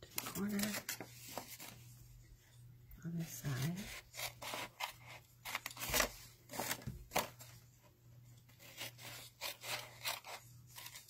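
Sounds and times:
scissors snipping paper: 8.6s - 11.0s.

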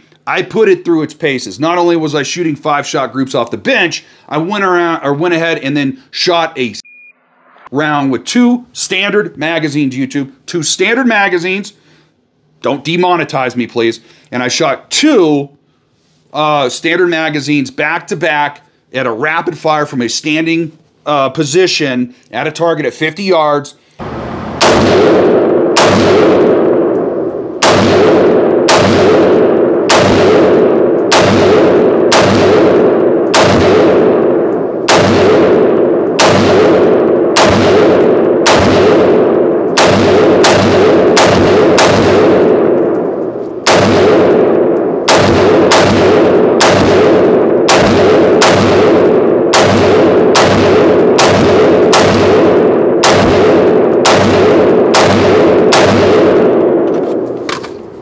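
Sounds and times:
rifle shots in indoor range: 23.9s - 58.0s.

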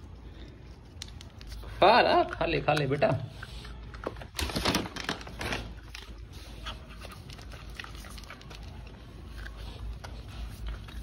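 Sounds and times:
dog crunching kibble: 0.9s - 11.0s
dog food bag rustling: 4.2s - 9.4s.

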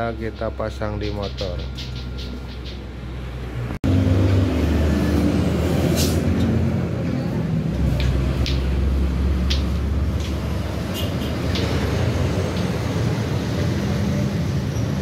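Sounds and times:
vehicle engine rumbling: 0.0s - 15.0s.

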